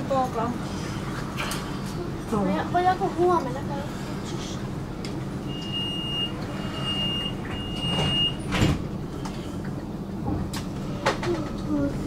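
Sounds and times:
tram low hum: 0.0s - 12.0s
high-pitched door warning beeps: 5.5s - 8.4s
sliding doors shutting: 5.5s - 9.4s.

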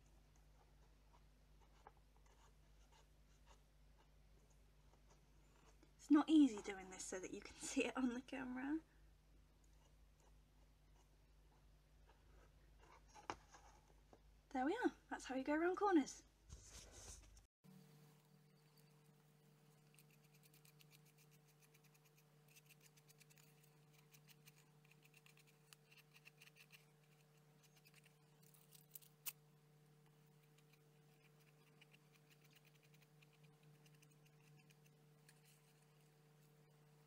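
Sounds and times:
paintbrush scratchy strokes: 18.5s - 28.6s, 30.1s - 37.0s.

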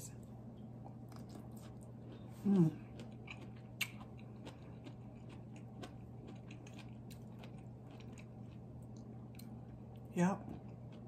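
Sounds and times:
person chewing crunchy food: 0.6s - 11.0s.

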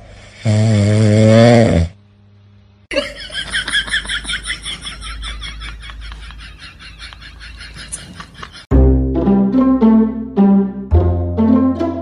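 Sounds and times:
dog snoring: 0.1s - 2.0s.

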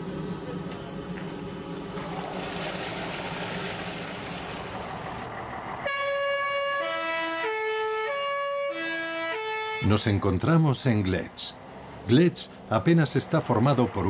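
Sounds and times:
three-tone bus horn tune: 5.8s - 10.2s.

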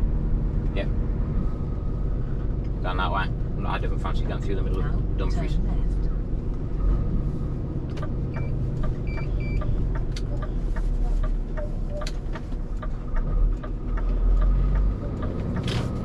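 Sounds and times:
truck engine running: 0.0s - 16.0s
short electronic beeps: 8.0s - 9.7s, 11.6s - 12.1s.

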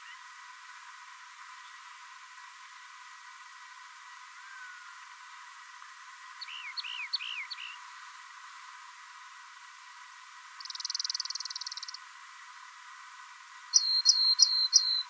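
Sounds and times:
faint hiss: 0.0s - 15.0s
bird chirping: 6.4s - 7.8s, 10.6s - 12.0s, 13.7s - 15.0s
buzzy bird trill: 6.4s - 7.8s, 10.6s - 12.0s, 13.7s - 15.0s.

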